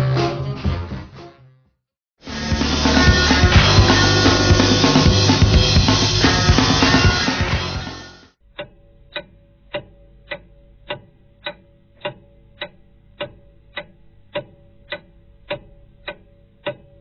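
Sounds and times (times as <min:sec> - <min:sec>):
steady ticking: 0:02.3 - 0:17.0.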